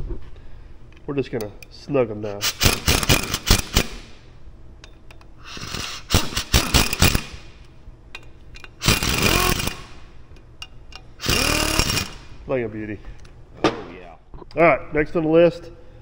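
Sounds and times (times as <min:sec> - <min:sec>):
cordless power driver running: 0:05.5 - 0:07.4, 0:08.8 - 0:10.0, 0:11.2 - 0:12.3.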